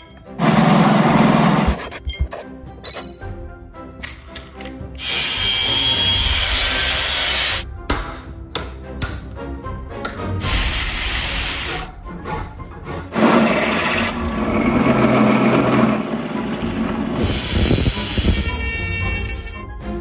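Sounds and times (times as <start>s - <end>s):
power tool working wood: 5.0s - 7.6s, 13.2s - 18.4s.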